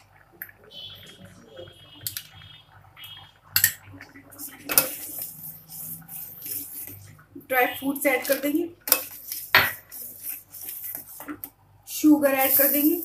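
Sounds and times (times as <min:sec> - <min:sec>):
ladle scraping in pot: 0:03.6 - 0:07.2.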